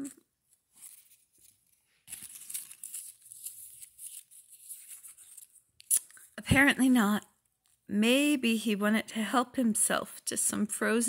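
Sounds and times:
faint paper rustling: 0.0 - 6.4.

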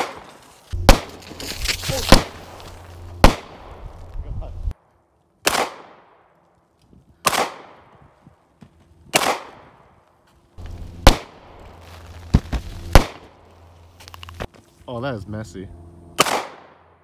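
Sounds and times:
handgun shots with echo: 5.4 - 6.1, 9.1 - 9.7, 16.2 - 16.8.

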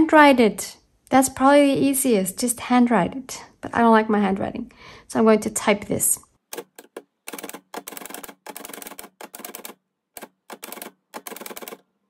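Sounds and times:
manual typewriter typing: 6.5 - 11.9.

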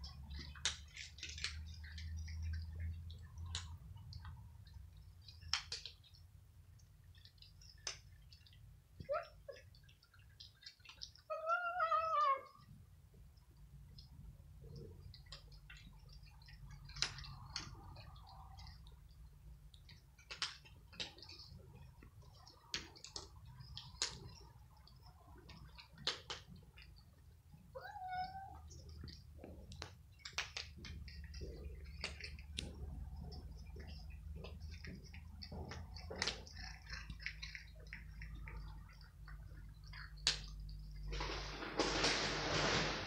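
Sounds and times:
cats crunching dry kibble: 0.0 - 11.3, 12.5 - 43.0
cat meowing: 27.8 - 28.7.

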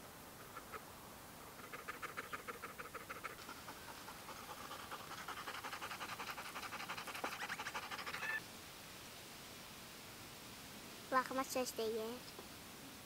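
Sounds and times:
dog panting: 1.4 - 8.4.

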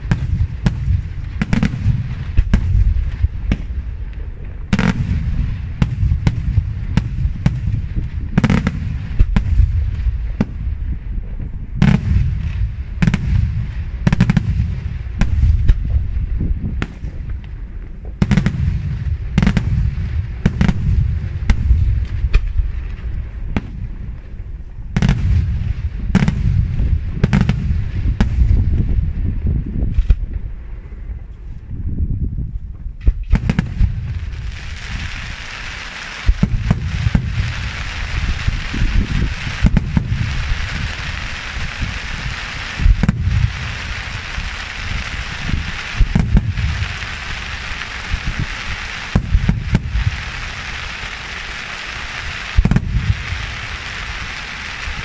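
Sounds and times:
fireworks bangs: 0.0 - 31.2, 32.9 - 55.0
low rumble: 0.0 - 35.3.

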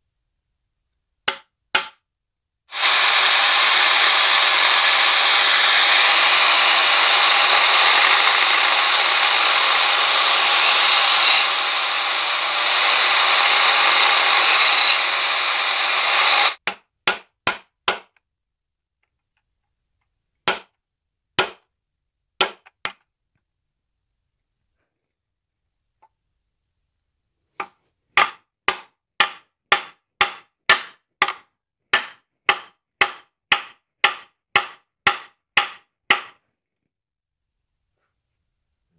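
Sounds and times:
angle grinder cutting metal: 2.7 - 16.6.

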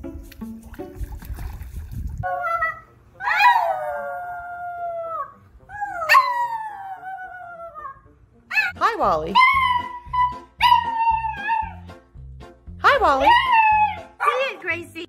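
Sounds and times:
dog howling: 2.2 - 8.8, 9.4 - 11.8, 13.2 - 14.1.

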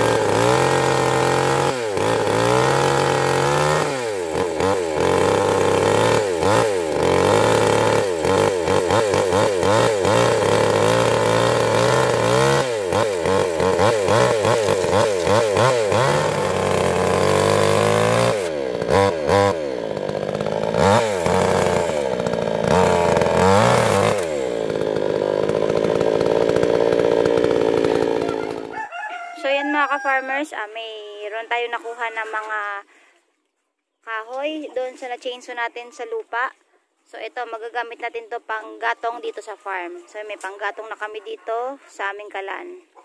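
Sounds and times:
chainsaw cutting wood: 0.0 - 29.4.

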